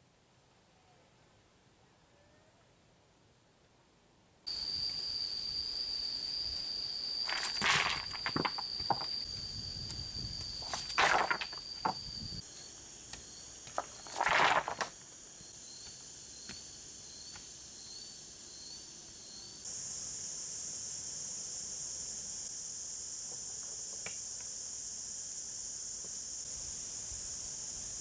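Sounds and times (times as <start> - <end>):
insects calling: 4.4 - 28.0
rocks clattering onto stones: 7.2 - 9.2, 10.6 - 12.0, 13.1 - 15.0.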